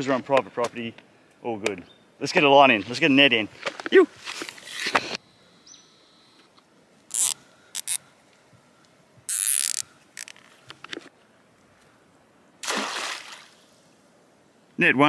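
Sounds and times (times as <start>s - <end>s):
net splashing into water: 12.6s - 13.6s.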